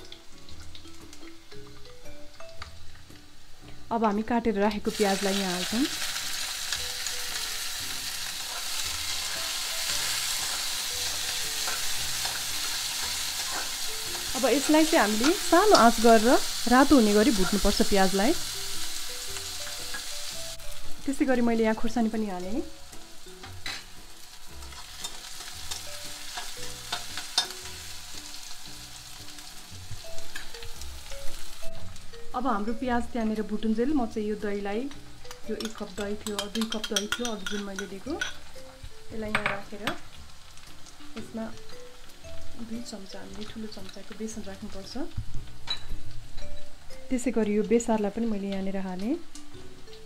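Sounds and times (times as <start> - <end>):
onions sizzling in hot oil: 0.0 - 50.0
spoon stirring in a metal pan: 5.3 - 20.3, 22.9 - 32.0, 34.9 - 42.7.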